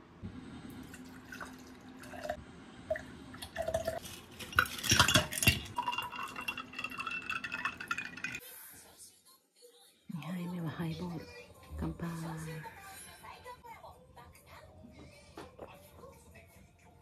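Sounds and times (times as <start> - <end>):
soda water pouring: 0.7 - 8.4
liquid poured into glass: 0.8 - 8.4
ice cubes clattering into glass: 3.6 - 8.4.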